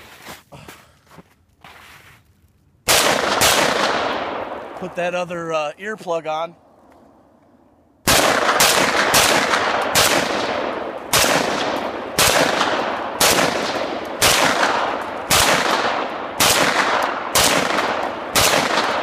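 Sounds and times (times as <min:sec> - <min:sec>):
rifle shots with echo: 0:02.9 - 0:05.4, 0:08.0 - 0:19.0.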